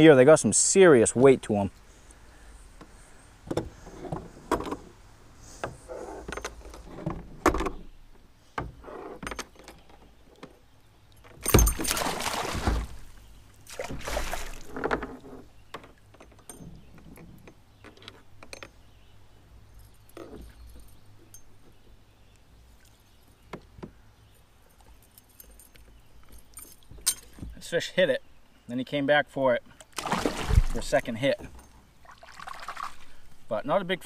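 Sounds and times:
fishing gear rattling in kayak: 8.8s - 13.2s, 13.9s - 18.9s, 30.0s - 33.3s.

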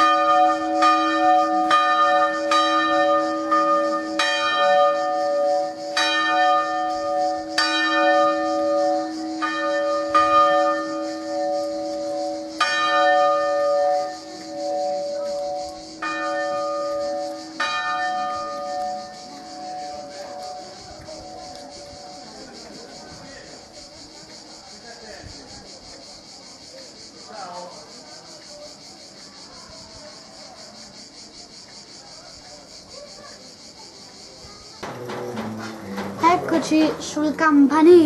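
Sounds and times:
church bells clanging: 0.0s - 21.5s, 34.8s - 37.9s.

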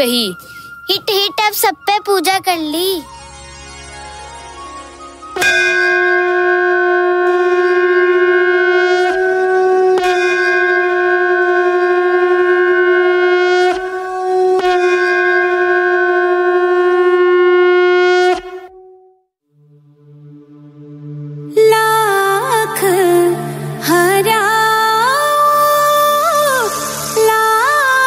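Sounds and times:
conch shell blasts: 5.4s - 19.1s.

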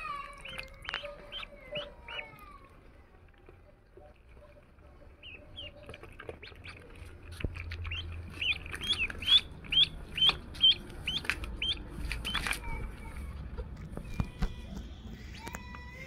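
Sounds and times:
ducklings peeping: 0.1s - 2.5s, 3.9s - 12.6s.

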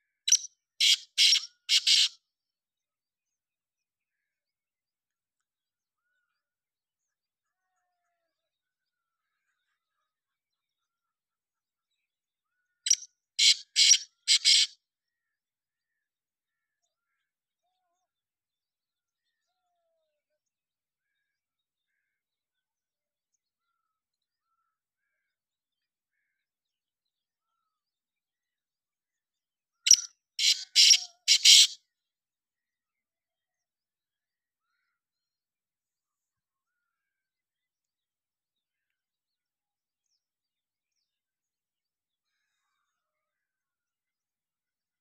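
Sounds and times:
bird harsh calls: 0.3s - 2.1s, 12.9s - 14.7s, 29.9s - 31.8s.

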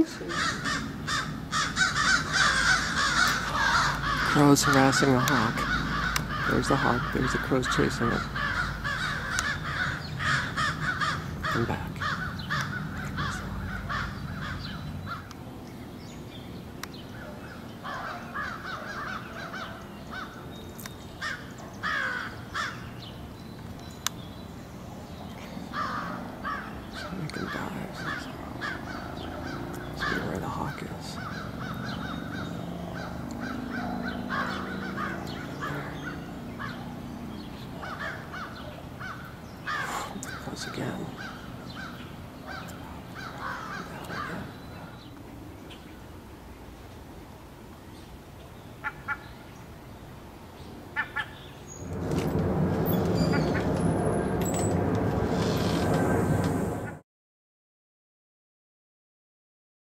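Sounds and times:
crows cawing: 0.1s - 15.4s, 17.2s - 20.5s, 21.2s - 23.1s, 25.7s - 45.1s, 48.8s - 49.3s, 51.0s - 51.5s.

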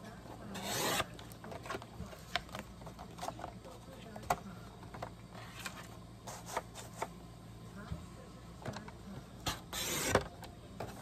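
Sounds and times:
paper handling clicks and rustles: 1.1s - 7.1s.

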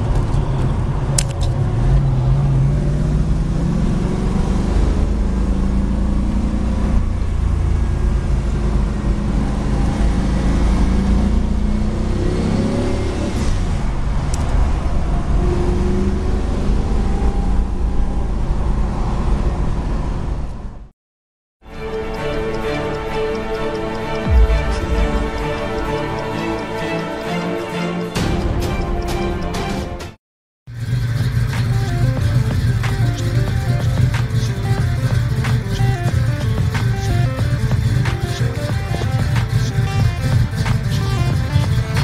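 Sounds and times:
car engine revving: 0.0s - 20.4s, 21.8s - 27.2s, 30.7s - 42.0s.

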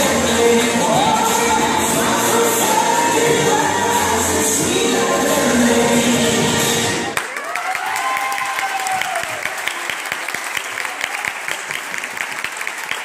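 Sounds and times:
group of people clapping: 7.1s - 13.0s.

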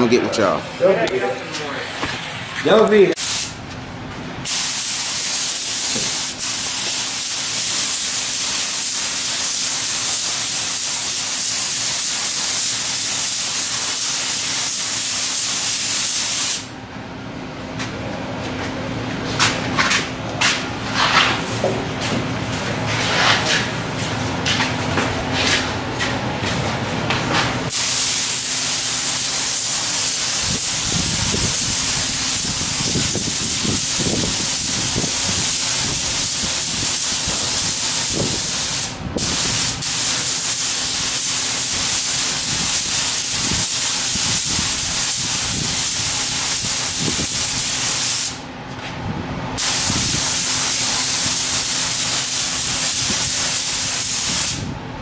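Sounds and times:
paint spray gun hissing: 3.2s - 3.5s, 4.5s - 16.7s, 27.7s - 48.4s, 49.6s - 54.6s.

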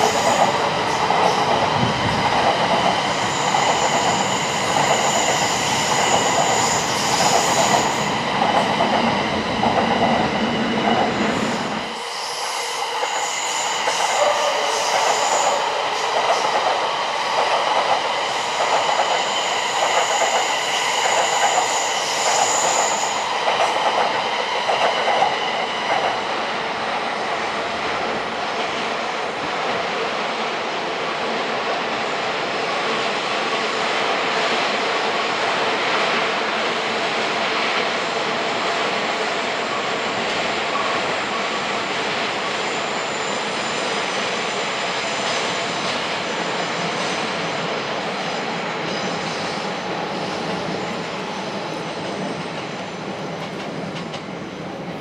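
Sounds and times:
deep train rumble: 0.0s - 12.0s
train wheels squealing: 0.0s - 26.4s, 38.6s - 54.4s.

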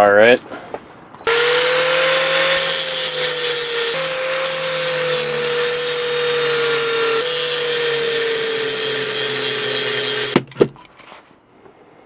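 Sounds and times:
angle grinder grinding metal: 1.3s - 10.4s.

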